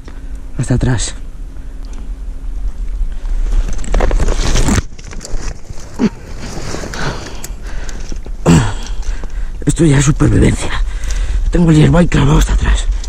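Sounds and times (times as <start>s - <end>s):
dry reeds rustling: 1.4s - 13.0s
person groaning in pain: 8.4s - 9.0s.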